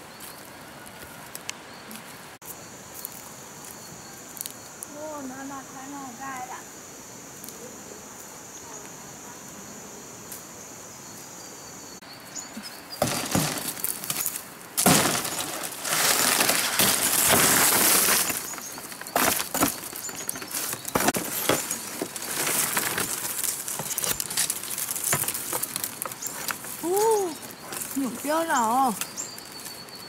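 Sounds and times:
dry palm leaves crackling: 13.0 - 30.0.

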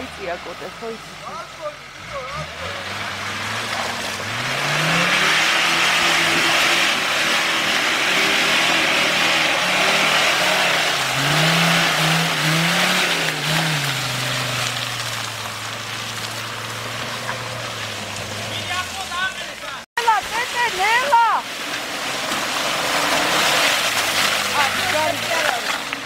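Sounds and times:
engine revving under load: 0.0 - 26.0.

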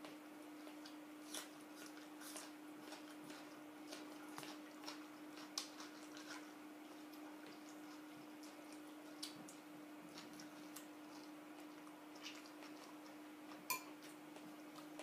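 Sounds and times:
faint chewing: 0.0 - 15.0
metal spoon clinking glass bowl: 13.7 - 13.9.

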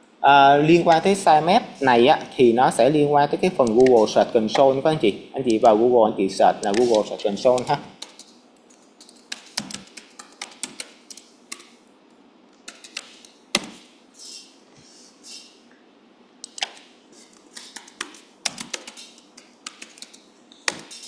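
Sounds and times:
keyboard typing clicks: 3.6 - 4.7, 6.6 - 11.7, 12.6 - 13.8, 16.4 - 16.9, 17.5 - 21.0.

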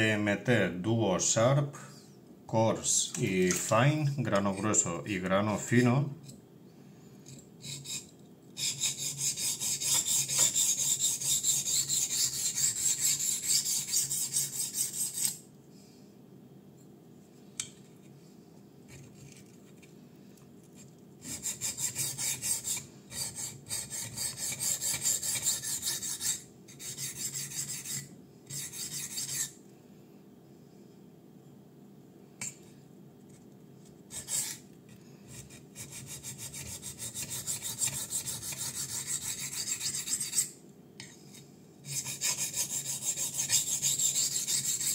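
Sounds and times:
knife blade rasping on sharpening plate: 7.6 - 15.4.

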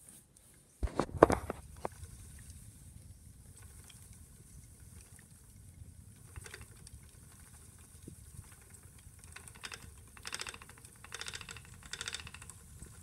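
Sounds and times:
spinning wheel rumbling: 3.5 - 13.0
quick clicking rattle: 8.4 - 13.0.

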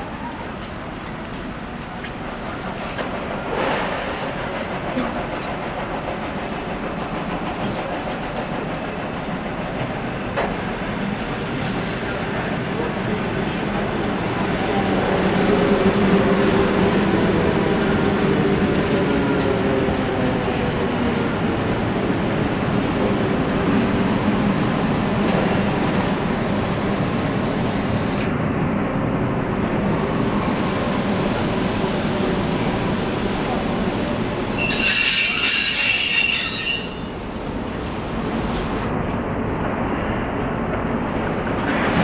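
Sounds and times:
train wheels rumbling on rail: 0.0 - 42.0
high-pitched wheel squeal: 31.3 - 37.2.

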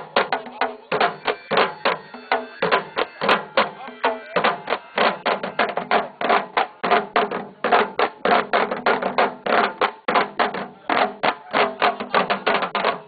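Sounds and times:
drums playing fast rhythm: 0.0 - 13.0.

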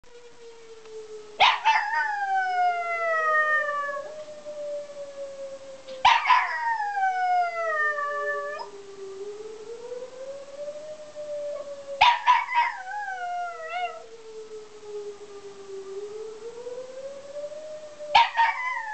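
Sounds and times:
warning siren wailing: 0.0 - 18.9
dog howling: 1.4 - 4.1, 6.0 - 8.7, 11.6 - 14.0, 18.1 - 18.9.

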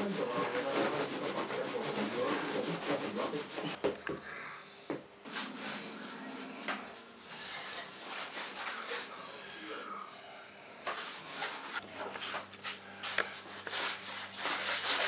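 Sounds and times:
rubbing on wooden panel: 0.0 - 3.8, 5.3 - 9.1, 10.9 - 15.0.

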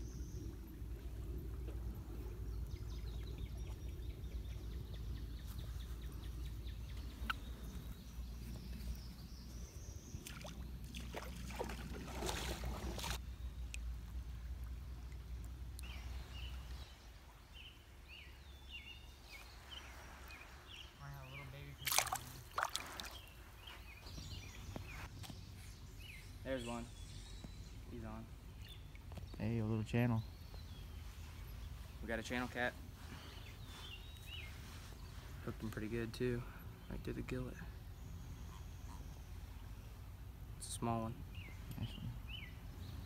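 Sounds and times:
low outdoor rumble: 0.0 - 17.0
rustling and scraping in sand: 19.1 - 26.2, 30.5 - 36.1.

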